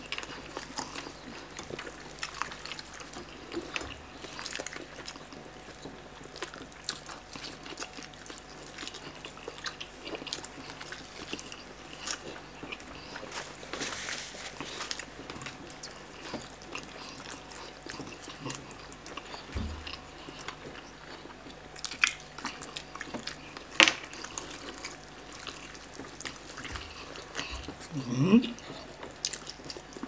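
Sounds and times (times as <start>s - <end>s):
wet chewing and lip-smacking: 0.0s - 13.7s, 14.9s - 30.0s
rustling: 13.0s - 15.5s.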